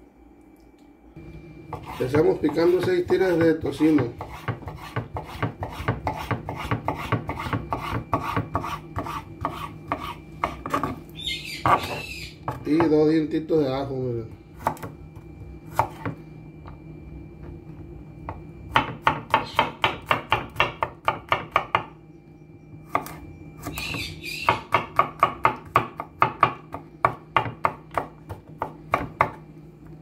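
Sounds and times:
knife chopping on wooden board: 1.7 - 11.0, 11.6 - 13.0, 14.6 - 15.0, 15.7 - 16.2, 18.2 - 21.9, 22.9 - 29.4.

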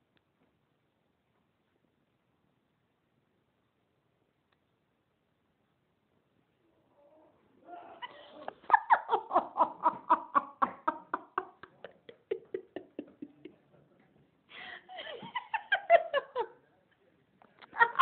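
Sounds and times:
hearty laughter: 7.7 - 13.7, 14.6 - 16.6, 17.6 - 18.0.

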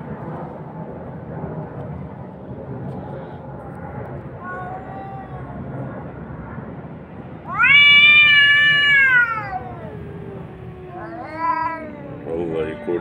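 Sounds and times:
cat yowling: 4.4 - 5.7, 7.4 - 13.0.

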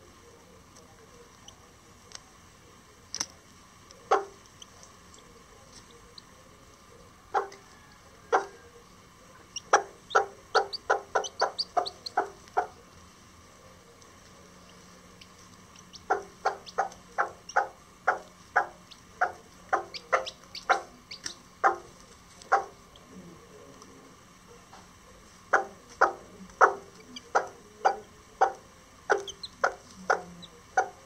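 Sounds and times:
hen clucking rapidly: 3.9 - 13.1, 14.4 - 23.1, 25.4 - 31.0.

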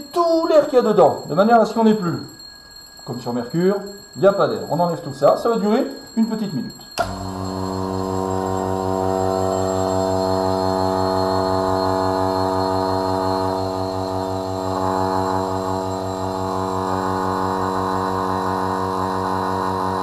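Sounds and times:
vacuum pump humming: 7.0 - 20.0.

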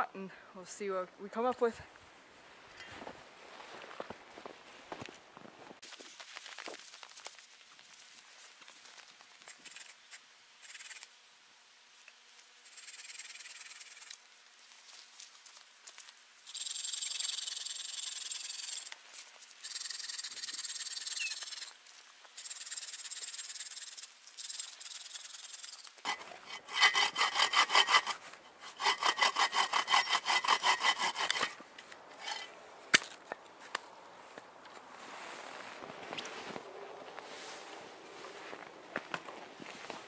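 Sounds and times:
bow saw cutting branch: 22.4 - 31.6.

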